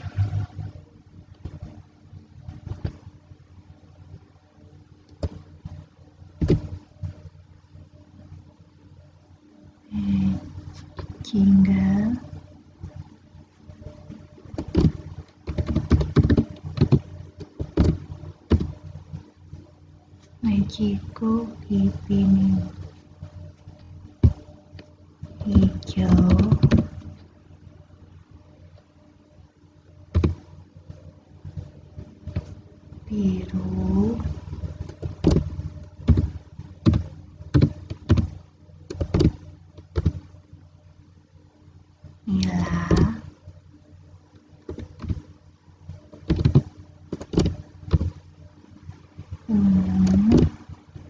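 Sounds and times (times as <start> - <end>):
faint steady hum: 0.0 - 51.0
keyboard typing: 14.5 - 18.8, 24.2 - 27.1, 30.1 - 30.5, 33.4 - 40.3, 44.7 - 45.3, 46.2 - 48.2.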